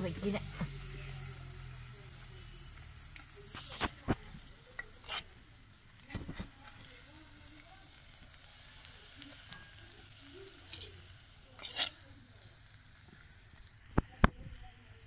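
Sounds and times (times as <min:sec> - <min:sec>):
faint hiss: 0:00.0 - 0:15.0
spoon scraping and splashing: 0:05.0 - 0:05.4, 0:11.6 - 0:12.0.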